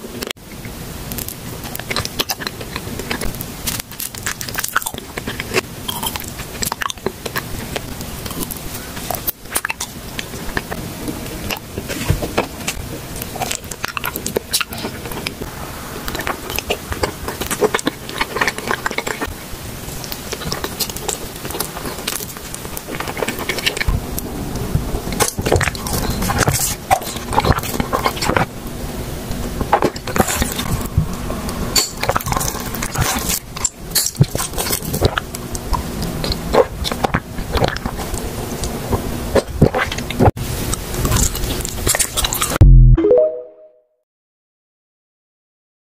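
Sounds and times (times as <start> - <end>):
crunching ice and sweets: 0.1 - 42.6
low hum: 15.2 - 18.1, 42.6 - 43.6.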